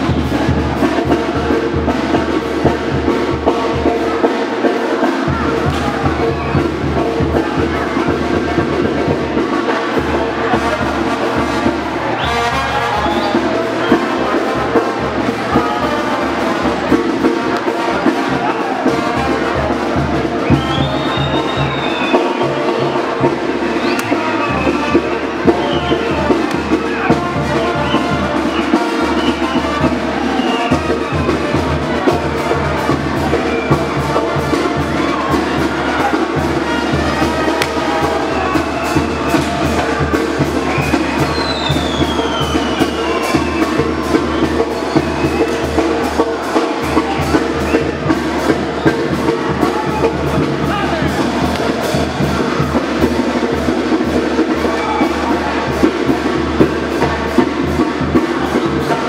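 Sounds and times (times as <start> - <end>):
live band music: 0.0 - 59.0.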